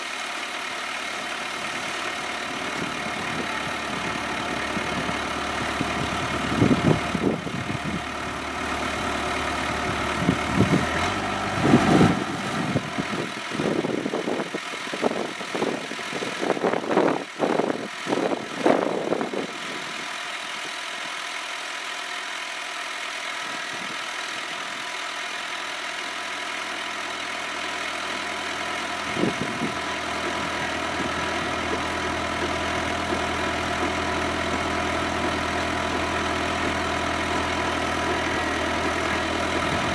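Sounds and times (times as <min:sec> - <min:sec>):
tractor diesel engine running: 0:00.0 - 0:39.9
auger boring into ground: 0:23.4 - 0:39.9.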